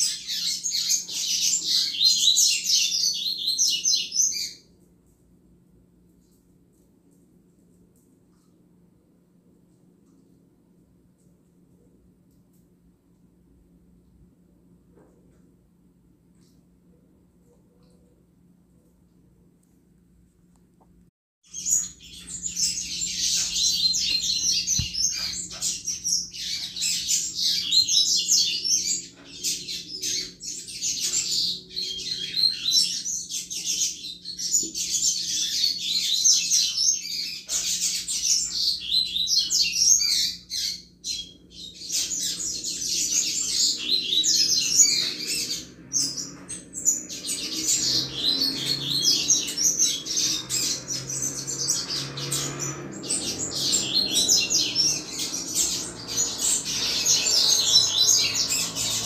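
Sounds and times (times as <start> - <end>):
seedeater bird singing: 0.0 - 4.7, 21.5 - 59.0.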